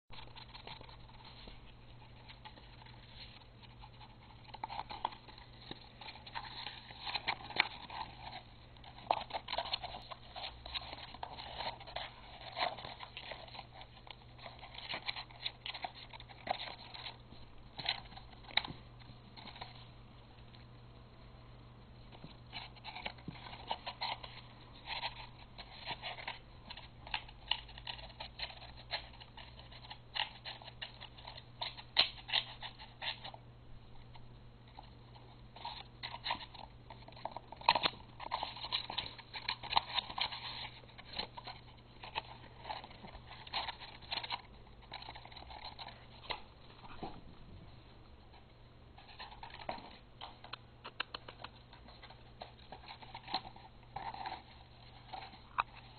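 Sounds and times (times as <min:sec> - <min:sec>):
puppy chewing cardboard tube: 0:35.6 - 0:47.4.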